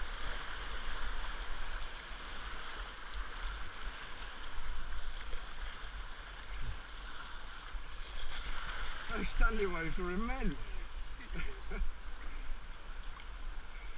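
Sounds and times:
whitewater rushing: 7.3 - 12.5.

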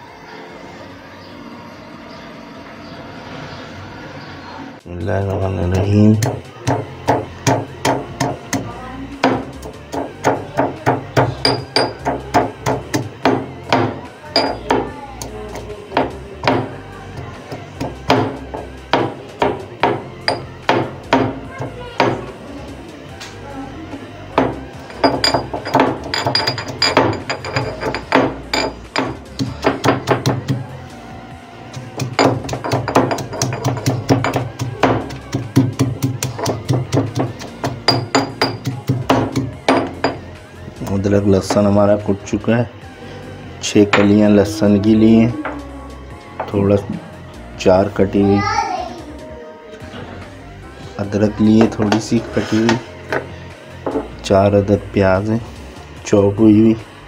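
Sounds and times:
pestle pounding in a mortar: 5.9 - 22.2, 24.4 - 30.7, 31.7 - 40.3
stone clinking on stone: 9.2 - 12.5, 13.7 - 14.8, 20.3 - 20.8, 24.4 - 30.4, 32.0 - 40.2.

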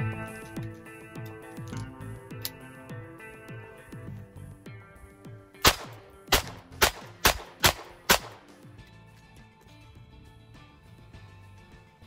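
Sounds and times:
revolver shots with ring: 5.6 - 8.5.

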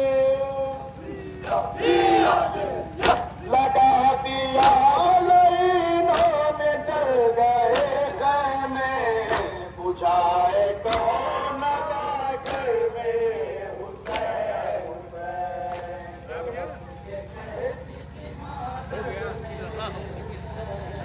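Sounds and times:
men chanting a lament: 0.0 - 21.0
chest-beating slaps: 3.0 - 3.4, 4.6 - 4.9, 6.1 - 6.4, 7.7 - 8.1, 9.2 - 9.6, 10.8 - 11.2, 12.4 - 12.8, 14.0 - 14.4.

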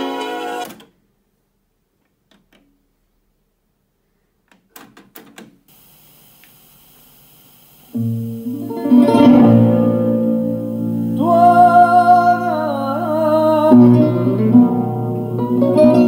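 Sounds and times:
held wavering vocal note: 8.0 - 14.1
guitar music with singing: 8.0 - 16.0.

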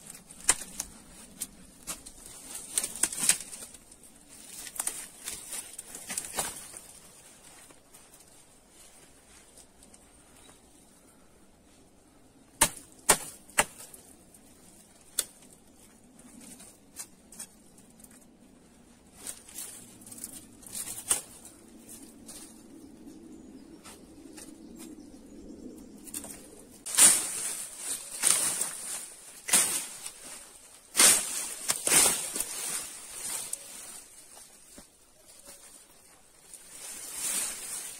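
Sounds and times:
dry twigs snapping: 0.0 - 7.0, 12.6 - 18.2, 19.2 - 22.6, 26.0 - 37.9
dry brush rustling: 0.0 - 10.2, 18.8 - 22.6, 26.1 - 37.9.

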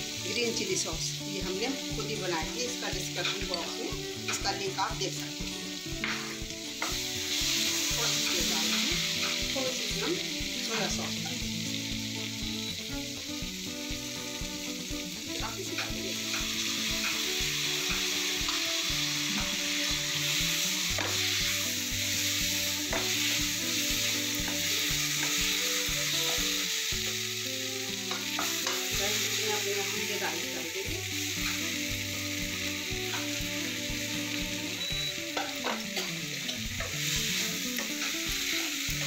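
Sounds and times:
vegetables sizzling in oil: 0.0 - 39.0.

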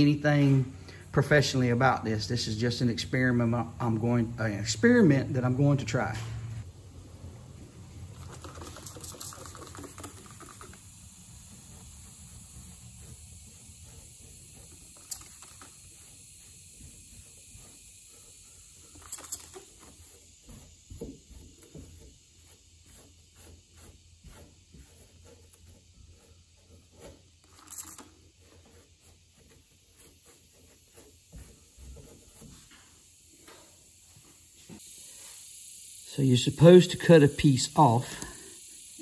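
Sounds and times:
cloth rubbing on fiberglass: 8.1 - 35.4.

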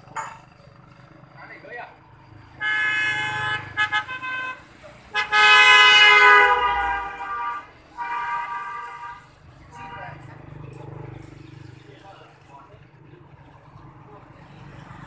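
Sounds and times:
motorcycle horn honking: 2.6 - 9.2.

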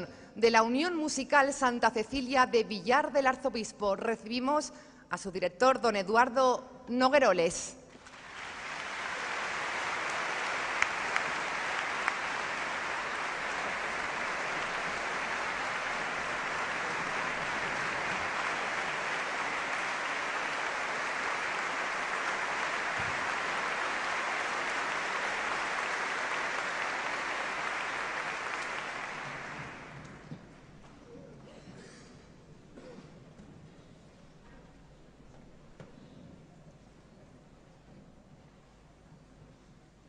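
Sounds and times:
audience applauding: 8.0 - 30.3
sharp individual claps: 8.0 - 30.3.

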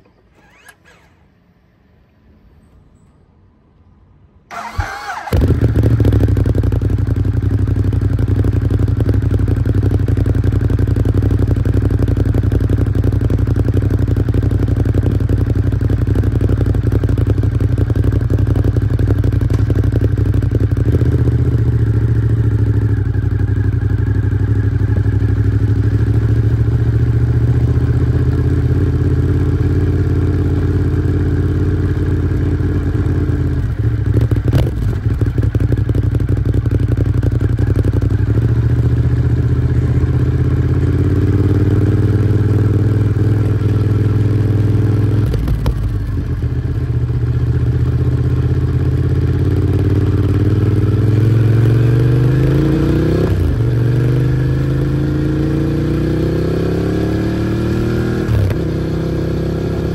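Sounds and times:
motorcycle engine idling: 0.0 - 1.2, 4.5 - 51.0
motorcycle engine revving: 0.1 - 1.3, 4.5 - 59.9.

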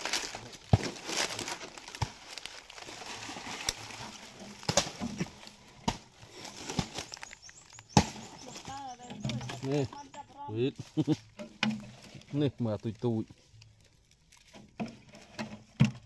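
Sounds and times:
wood cracking sharply: 0.0 - 10.0
dry fronds and wood rustling: 0.0 - 16.0.

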